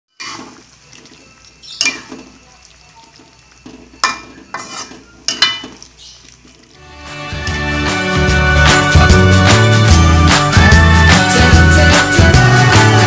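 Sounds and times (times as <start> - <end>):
spatula scraping a wok: 0.1 - 0.8, 3.8 - 5.9
faint sauce sizzle: 0.1 - 7.4.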